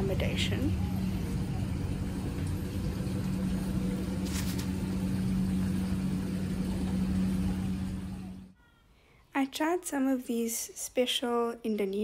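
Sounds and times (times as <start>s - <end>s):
low mechanical hum: 0.0s - 8.6s.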